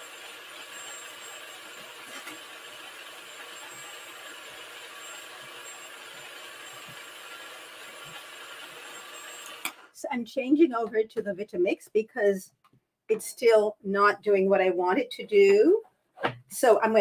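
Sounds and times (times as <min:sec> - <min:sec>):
food processor motor whirring: 0:00.0 - 0:10.0.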